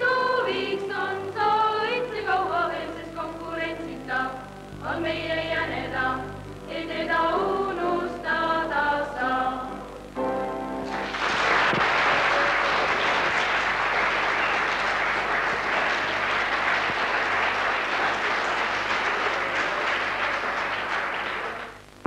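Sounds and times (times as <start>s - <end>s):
large audience applauding: 10.9s - 21.8s.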